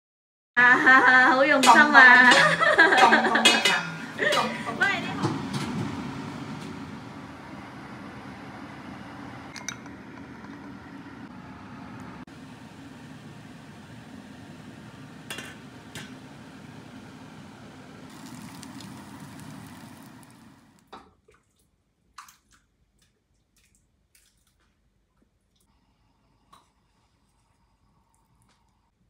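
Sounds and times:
tableware taps: 0:02.3 - 0:04.5
food sizzling in a pan: 0:18.1 - 0:20.8.

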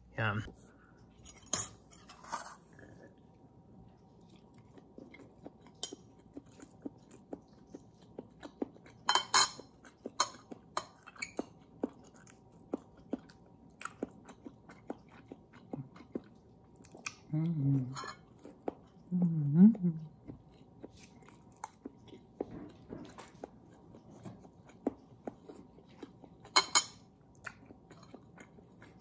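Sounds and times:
person chewing food: 0:02.6 - 0:29.0.

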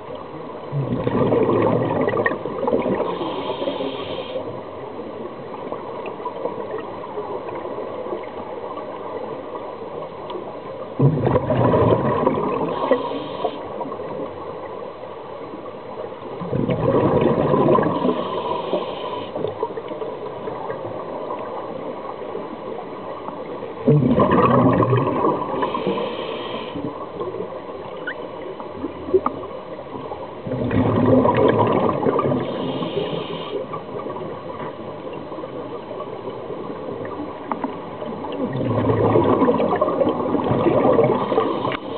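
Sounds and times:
underwater exhaled bubbles gurgling: 0:00.0 - 0:41.9
faint high hiss: 0:03.0 - 0:04.9, 0:17.9 - 0:19.7, 0:25.5 - 0:27.0.

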